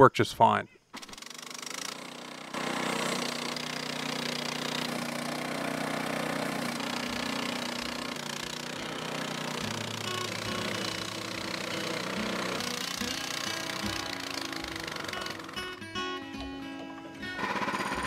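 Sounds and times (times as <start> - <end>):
sawmill gasoline engine running: 1.0 - 18.0.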